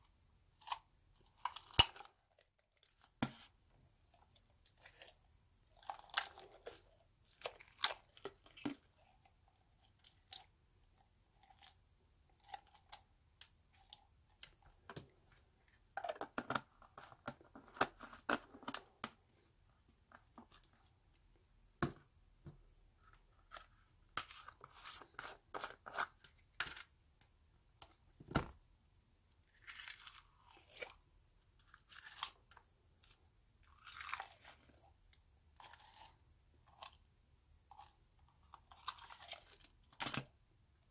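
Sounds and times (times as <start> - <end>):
plastic spoon scooping: 23.1 - 26.4.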